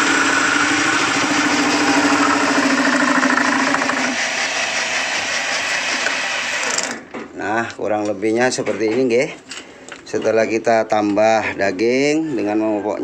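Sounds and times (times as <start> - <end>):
steady hum: 0.0 - 5.4
power tool machining steel: 0.0 - 6.9.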